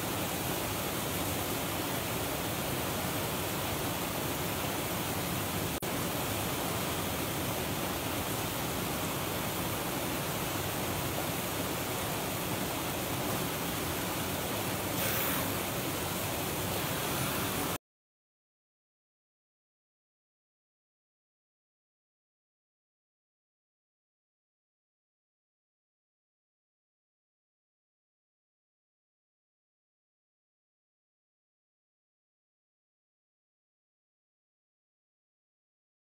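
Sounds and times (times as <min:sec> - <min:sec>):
running water from waterfall: 0:00.0 - 0:17.8.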